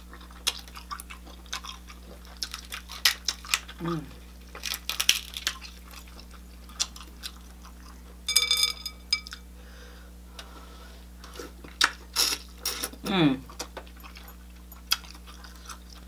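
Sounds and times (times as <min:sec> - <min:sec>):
eating and mouth sounds: 0:00.0 - 0:08.2, 0:11.2 - 0:16.0
shellfish shell cracking: 0:02.4 - 0:03.8, 0:04.5 - 0:07.4.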